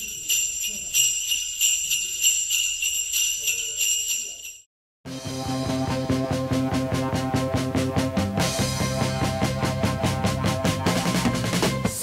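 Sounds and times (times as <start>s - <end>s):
sleigh bells shaken: 0.0s - 4.7s
music with steady drum beat: 5.1s - 12.0s.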